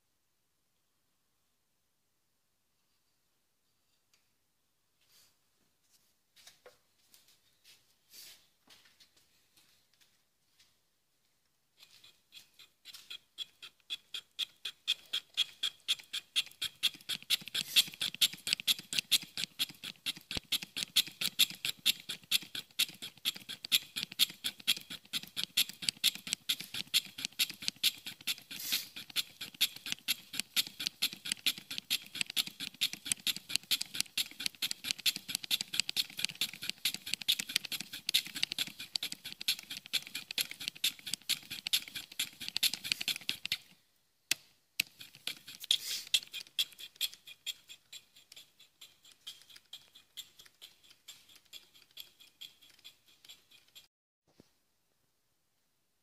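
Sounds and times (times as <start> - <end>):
lathe cutter scraping metal: 45.0 - 53.9.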